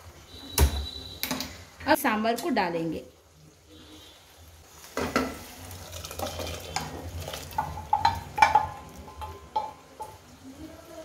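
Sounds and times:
wooden spatula scraping metal pan: 4.9 - 9.4
pan knocking on metal rim: 6.2 - 10.2.

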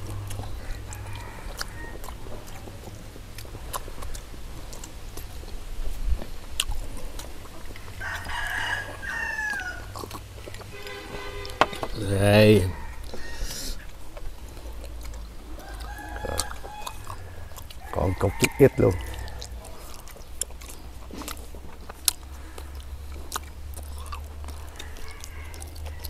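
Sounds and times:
rooster crowing: 0.4 - 2.5, 7.7 - 10.0, 10.7 - 13.9, 15.4 - 20.0, 24.0 - 26.0.

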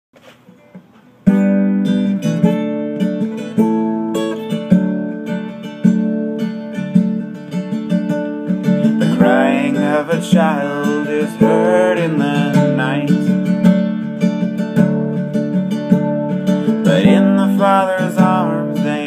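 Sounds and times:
acoustic guitar strummed chords: 0.2 - 19.0
man singing: 8.8 - 13.6, 16.7 - 19.0.

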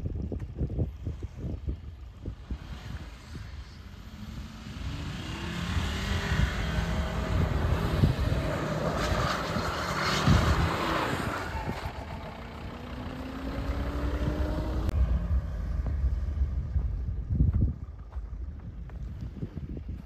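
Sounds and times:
diesel engine accelerating: 0.0 - 20.0
rushing noise: 13.4 - 19.2.

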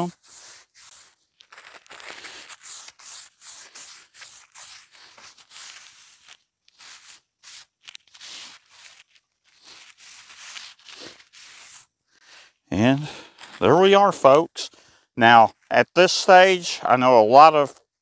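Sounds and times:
paper towel wiping a steel griddle: 0.0 - 11.9.

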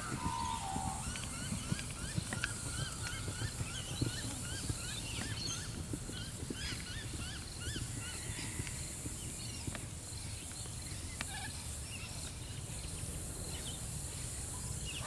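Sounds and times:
bird calling: 0.0 - 5.8
horse hooves on sand: 0.0 - 15.0.

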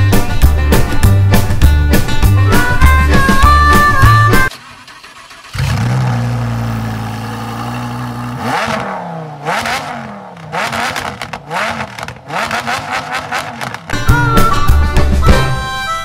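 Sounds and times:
sports car engine revving: 5.4 - 13.9.

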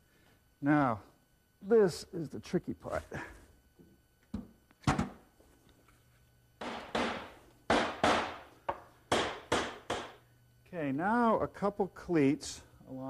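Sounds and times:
hammer knocking on wood: 6.6 - 10.2.

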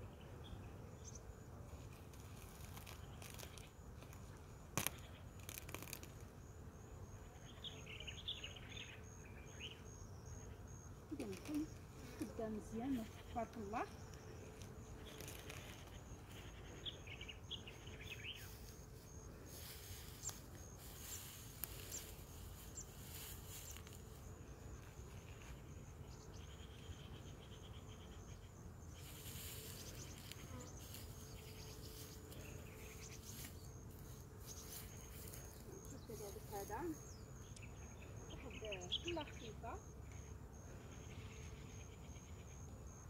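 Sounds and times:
insects chirping: 0.0 - 43.0
bird chirps: 34.4 - 40.3.

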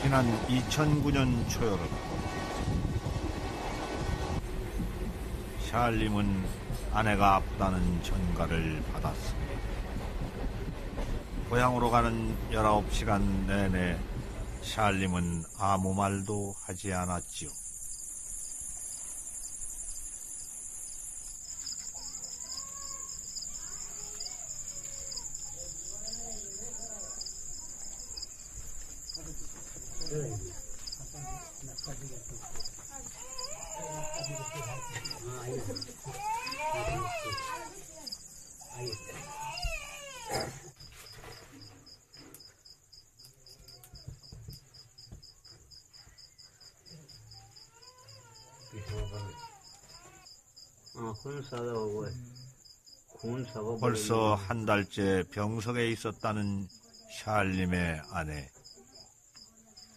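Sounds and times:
insects chirring: 14.4 - 59.9
pulsing insect chirp: 15.4 - 40.2, 41.6 - 54.5.

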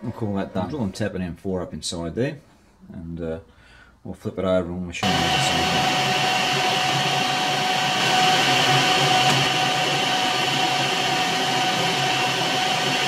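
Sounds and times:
machine tool motor whine: 5.0 - 13.0.

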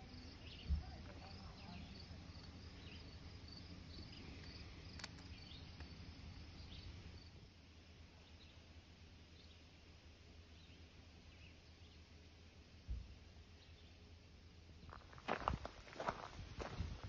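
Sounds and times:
low steady rumble: 0.0 - 17.0.

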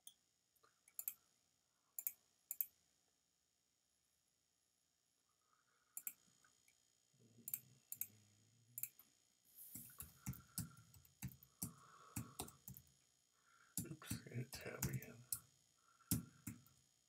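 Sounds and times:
computer mouse click: 0.9 - 1.2, 2.0 - 2.7, 6.0 - 6.2, 9.8 - 12.9.

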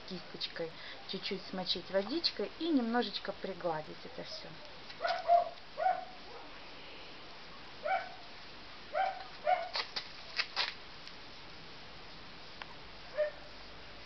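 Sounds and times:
dog yipping: 5.0 - 6.5, 7.8 - 8.2, 9.0 - 9.8, 13.1 - 13.5.

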